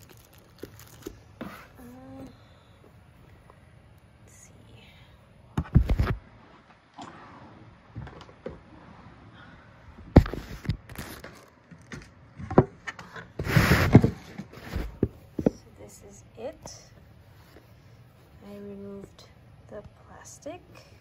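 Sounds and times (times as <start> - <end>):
plastic bag rustling: 0.0 - 1.8
box handling knocks and thumps: 12.4 - 15.6.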